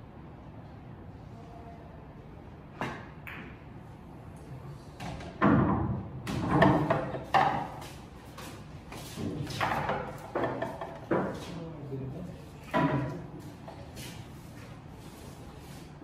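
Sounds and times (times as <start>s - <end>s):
pool balls clacking: 5.0s - 7.9s, 9.5s - 11.4s
pool balls thudding: 5.0s - 7.9s, 9.2s - 11.5s, 12.7s - 13.3s
cue striking ball: 5.4s - 7.8s.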